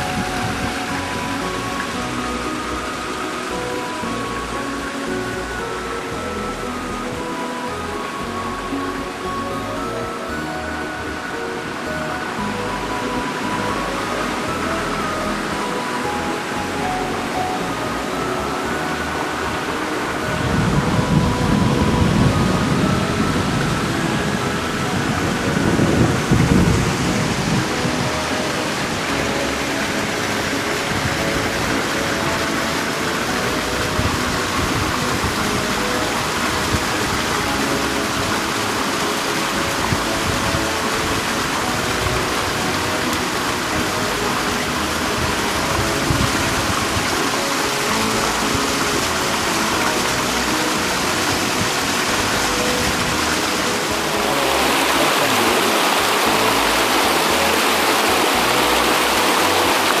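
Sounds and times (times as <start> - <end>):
faint background music: 0.0 - 60.0
river water rushing over rocks: 0.0 - 60.0.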